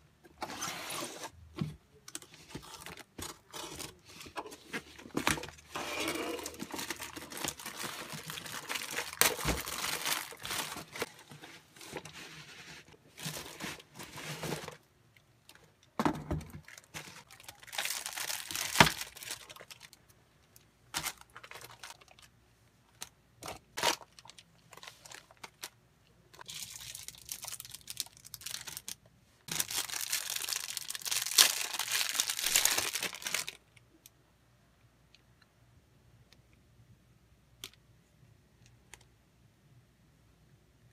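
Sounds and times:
plastic wrapping crinkling: 2.2 - 12.3, 16.6 - 20.0, 20.9 - 22.3, 23.0 - 33.6.

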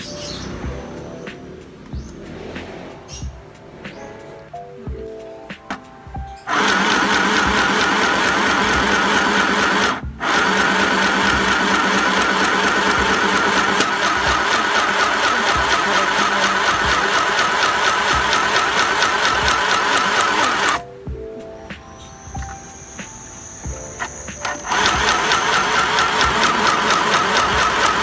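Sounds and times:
electric sewing machine running: 6.5 - 20.8, 24.0 - 28.0.

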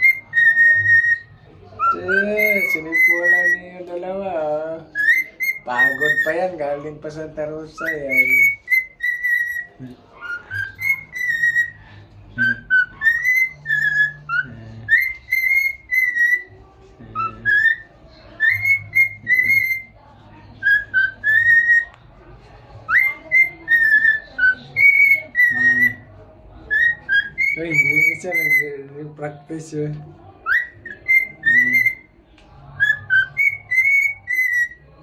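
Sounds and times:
cockatiel whistling a tune: 0.0 - 3.7, 4.9 - 6.6, 7.7 - 11.8, 12.4 - 16.5, 17.1 - 20.0, 20.6 - 22.0, 22.8 - 26.1, 26.7 - 28.8, 30.4 - 32.1, 32.8 - 34.8.

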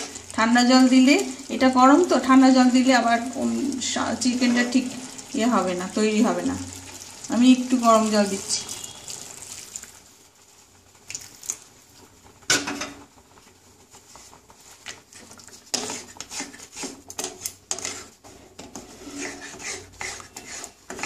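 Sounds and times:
wooden spatula scraping pan: 3.1 - 5.2, 14.1 - 21.0.

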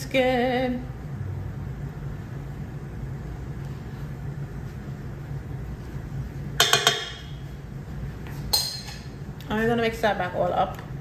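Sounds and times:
low steady hum: 0.0 - 11.0
utensil clinking on mixing bowl: 6.6 - 7.4.

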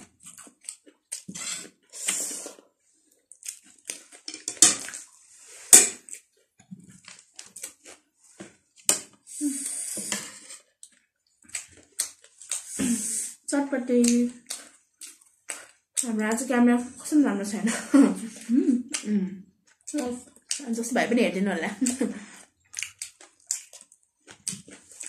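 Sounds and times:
slurping and chewing: 0.0 - 13.5, 14.1 - 16.1, 21.8 - 25.0
cutlery clinking on ceramic plates: 4.3 - 4.8.

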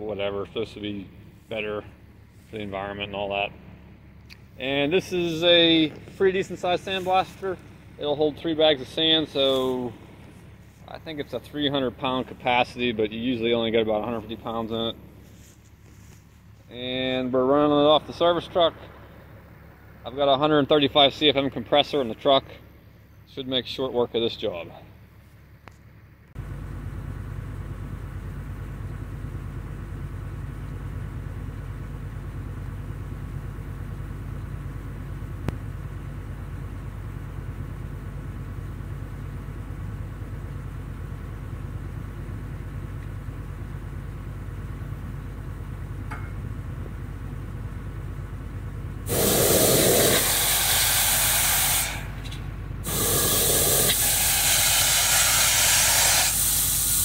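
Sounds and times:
air compressor droning: 0.0 - 23.2, 44.3 - 57.0
sandblaster hissing: 49.1 - 52.2, 52.8 - 57.0.

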